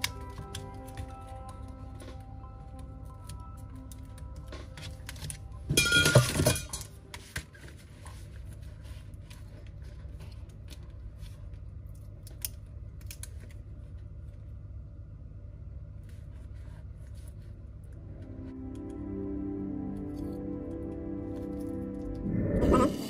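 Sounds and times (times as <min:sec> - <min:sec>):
steady low hum: 0:00.0 - 0:23.0
parts clattering: 0:05.7 - 0:07.4.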